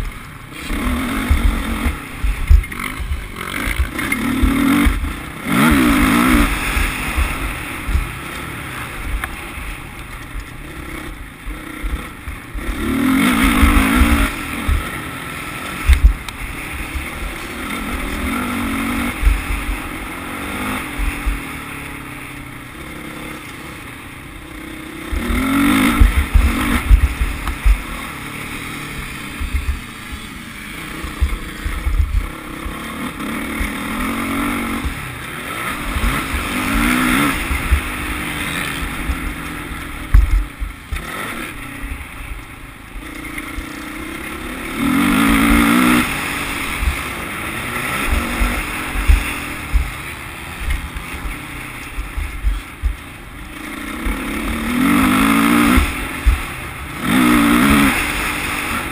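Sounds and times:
motocross bike engine revving: 0.0 - 58.9
wind rumbling on microphone: 29.2 - 30.3, 31.0 - 32.9.

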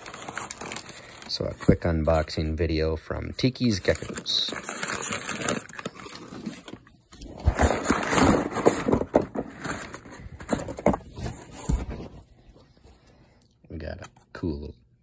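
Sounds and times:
packing paper crinkling: 0.0 - 2.4, 3.4 - 11.3.

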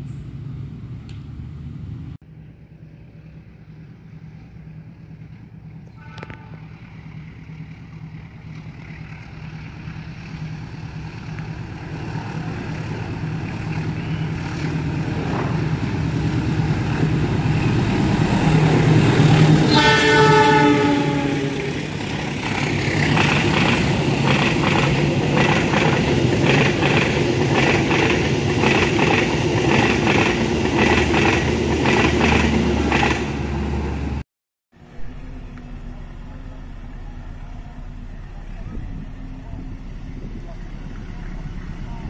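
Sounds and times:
rail noise: 0.0 - 34.2, 34.8 - 42.0
train engine drone: 0.0 - 34.2, 34.8 - 42.0
train horn: 5.8 - 6.9, 19.6 - 21.9.

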